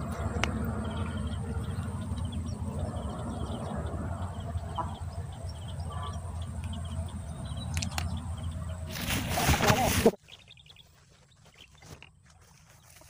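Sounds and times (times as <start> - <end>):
wind rumbling on microphone: 0.0 - 10.2
small birds chirping: 0.0 - 13.0.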